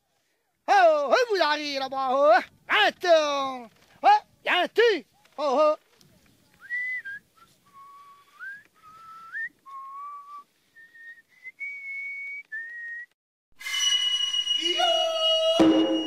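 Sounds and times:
person whistling: 0:06.6 - 0:16.0.

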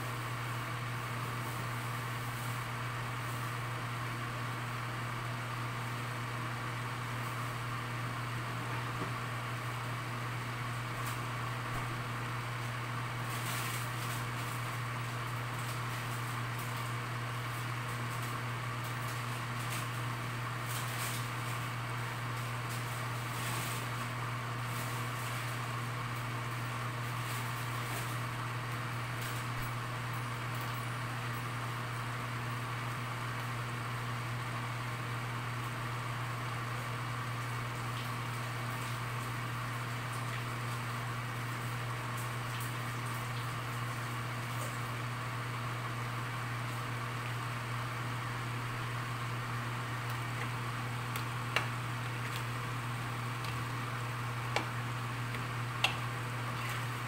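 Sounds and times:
kitchen hum and hiss: 0:00.0 - 0:57.0
faint crackles from pan: 0:36.0 - 0:57.0.

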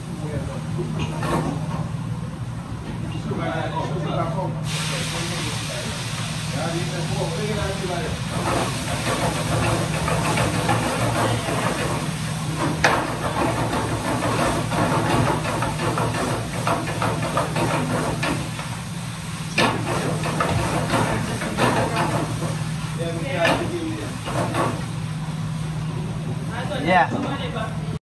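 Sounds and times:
greens sizzling in frying pan: 0:04.7 - 0:25.0.

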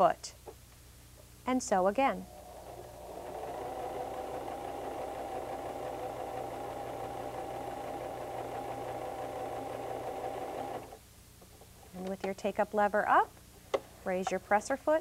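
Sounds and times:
sewing machine running: 0:02.2 - 0:11.0.

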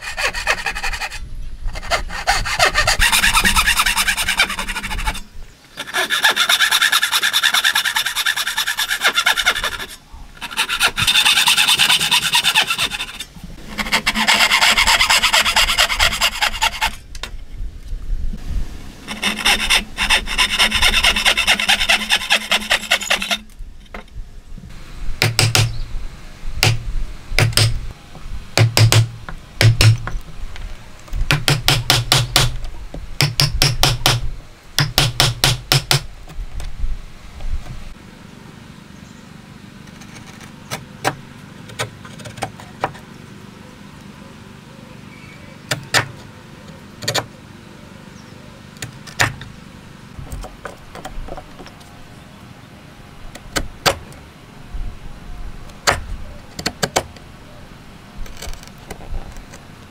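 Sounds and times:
hand saw cutting wood: 0:00.0 - 0:05.2, 0:05.8 - 0:17.0, 0:19.1 - 0:23.4
chisel knocking blows: 0:25.2 - 0:25.8, 0:26.6 - 0:26.8, 0:27.4 - 0:27.8, 0:28.6 - 0:30.2, 0:31.3 - 0:36.1.

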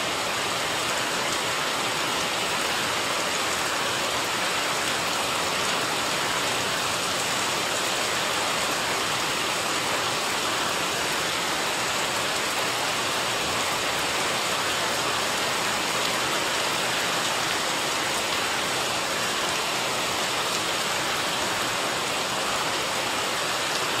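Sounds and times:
rain falling on leaves and paving: 0:00.0 - 0:24.0.

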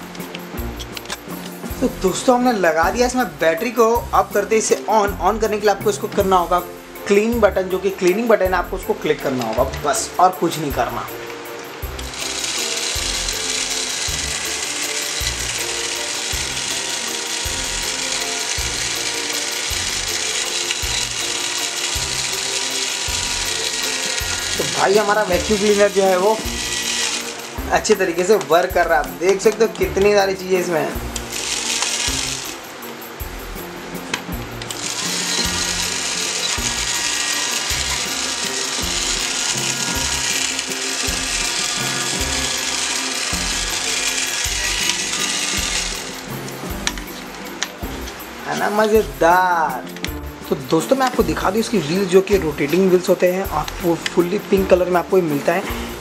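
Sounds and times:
toy vacuum motor whirring: 0:12.0 - 0:30.1, 0:31.0 - 0:32.6, 0:34.6 - 0:47.7
geared ratchety rattle: 0:12.0 - 0:30.4, 0:31.0 - 0:32.6, 0:34.5 - 0:55.7.

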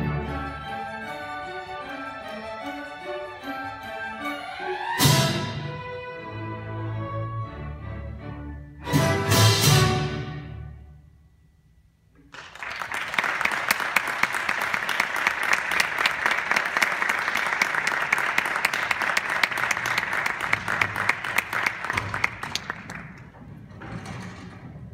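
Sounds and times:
audience applause: 0:12.3 - 0:23.3.

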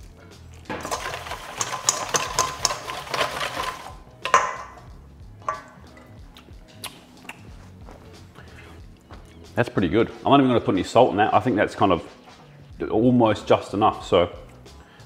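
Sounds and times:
whisk rattling in metal bowl: 0:00.7 - 0:04.8
metal clinking on bowl: 0:00.7 - 0:06.2.

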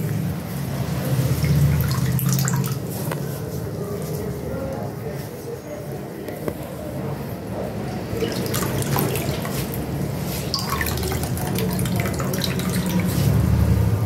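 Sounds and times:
water dripping into a bowl: 0:01.2 - 0:03.2, 0:07.9 - 0:13.8.

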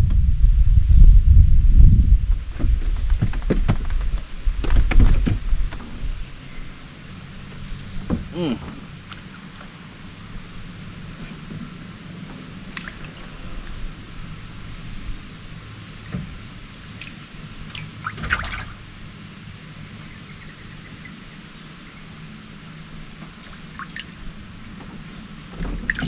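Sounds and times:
water trickling and dripping: 0:12.6 - 0:19.0, 0:23.4 - 0:24.4, 0:25.7 - 0:26.0
loud water splash: 0:16.9 - 0:18.8.

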